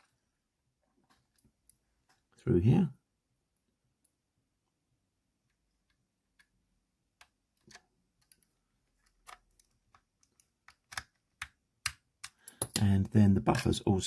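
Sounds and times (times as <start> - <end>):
plastic model parts clicking: 7.2 - 12.9.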